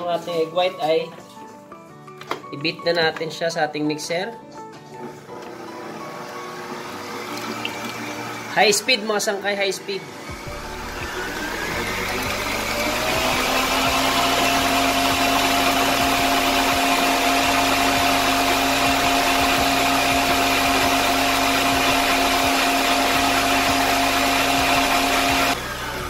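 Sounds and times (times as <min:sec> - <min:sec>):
stand mixer motor whining: 0:05.3 - 0:09.0, 0:10.0 - 0:26.0
whisk beating in steel bowl: 0:10.5 - 0:25.6.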